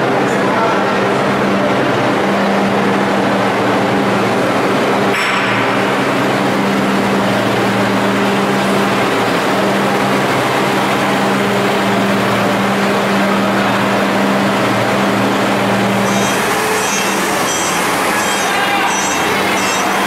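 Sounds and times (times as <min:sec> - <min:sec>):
diesel tractor engine running: 0:00.0 - 0:20.0.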